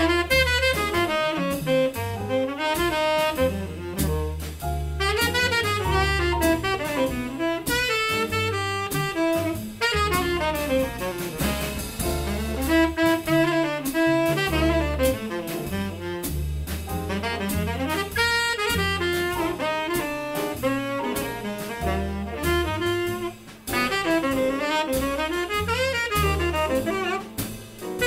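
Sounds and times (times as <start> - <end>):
bass line: 0.0 - 28.0
drum kit: 0.0 - 28.0
saxophone lines: 5.0 - 11.2, 12.3 - 16.2, 17.1 - 27.4.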